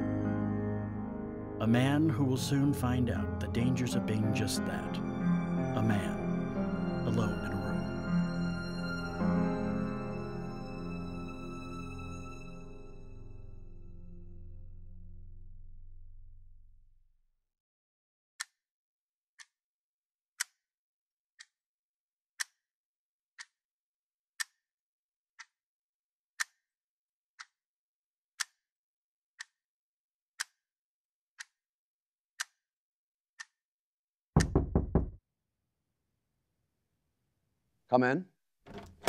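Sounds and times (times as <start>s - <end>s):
knocks on a door: 34.4s - 35.2s.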